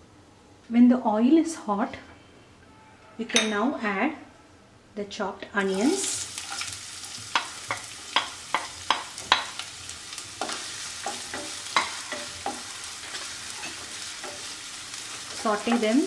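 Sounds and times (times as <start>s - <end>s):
onions sizzling in hot oil: 5.6s - 16.0s
spatula scraping a pan: 6.0s - 9.6s, 10.4s - 16.0s.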